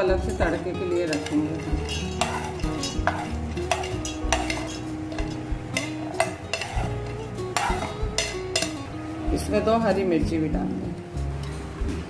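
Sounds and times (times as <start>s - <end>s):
background music: 0.0s - 12.0s
metal spoon scraping a plate: 0.3s - 8.8s.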